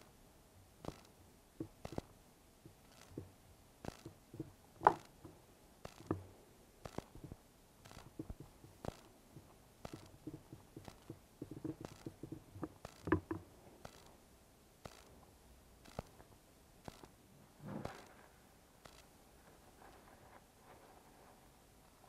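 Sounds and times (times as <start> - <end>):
small plastic clicks: 0.8 - 14.2, 14.8 - 17.2, 18.8 - 19.2.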